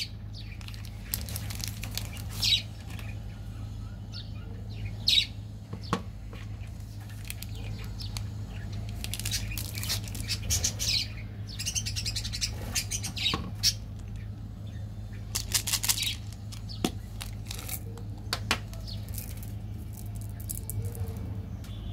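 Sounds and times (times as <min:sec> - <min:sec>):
steady low hum: 0:00.0 - 0:21.9
wrappers crinkling: 0:00.6 - 0:03.1, 0:06.8 - 0:10.5, 0:15.3 - 0:18.0, 0:18.7 - 0:21.2.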